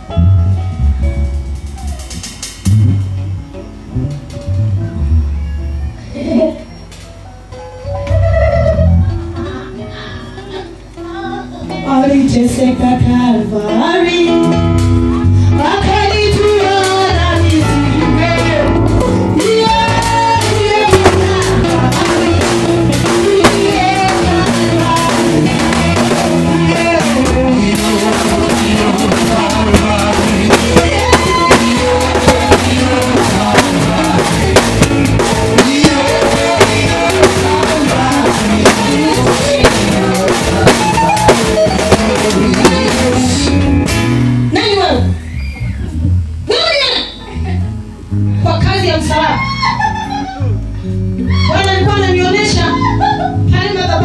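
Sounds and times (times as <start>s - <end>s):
sharp drum hits: 0.2s - 4.3s, 20.0s - 44.3s
church worship music: 17.6s - 44.5s.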